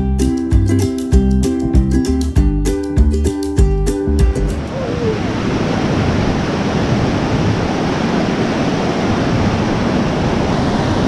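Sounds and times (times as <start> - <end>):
creek rushing over rocks: 4.5 - 11.0.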